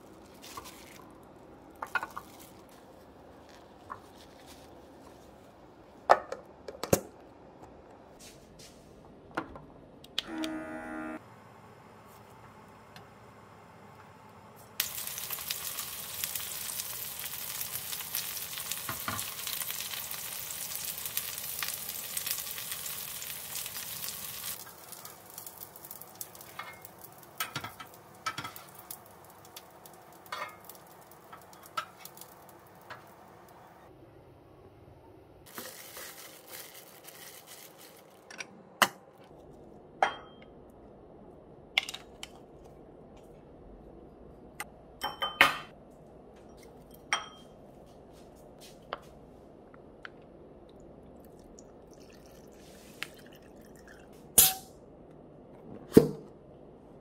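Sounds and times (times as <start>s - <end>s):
pancakes sizzling in oil: 14.8s - 33.2s
kitchenware knocking and clinking: 45.0s - 45.7s.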